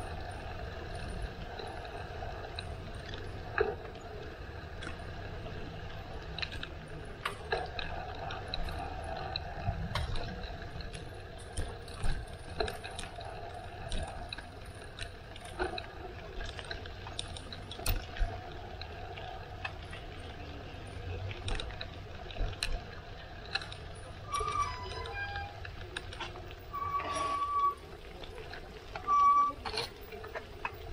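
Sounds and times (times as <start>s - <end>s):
bicycle rattling: 0.0s - 30.9s.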